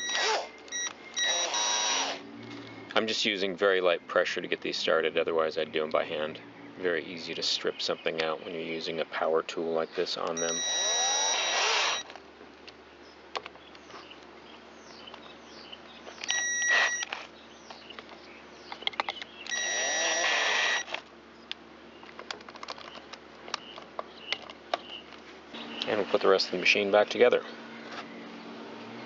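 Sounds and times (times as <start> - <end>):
power driver motor whine: 0.0 - 3.1, 10.3 - 12.2, 16.1 - 17.3, 19.1 - 21.1
handling clicks and knocks: 17.2 - 19.6, 21.4 - 26.0.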